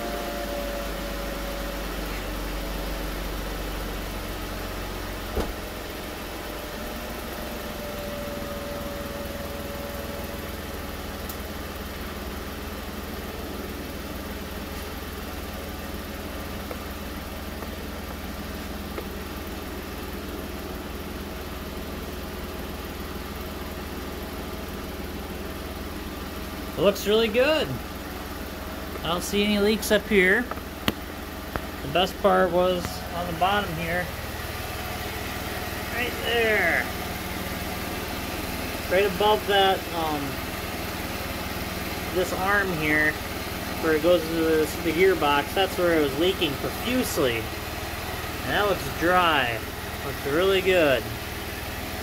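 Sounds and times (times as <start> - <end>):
car engine idling: 0.0 - 52.0.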